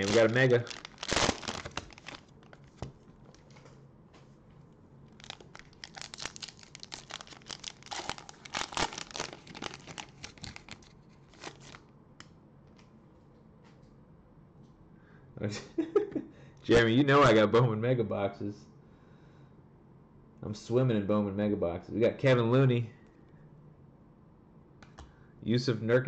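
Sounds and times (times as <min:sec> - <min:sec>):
cellophane wrapper crinkling: 0:00.0 - 0:03.7, 0:05.1 - 0:11.8.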